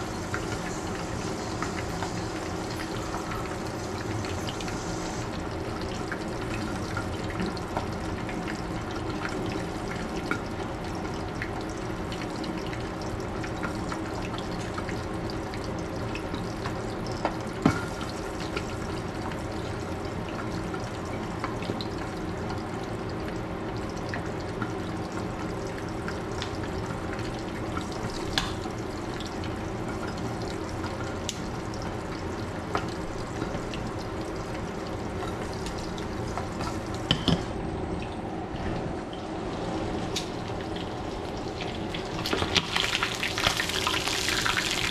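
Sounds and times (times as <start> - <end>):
fish sizzling in oil: 0.0 - 19.9, 40.0 - 44.9.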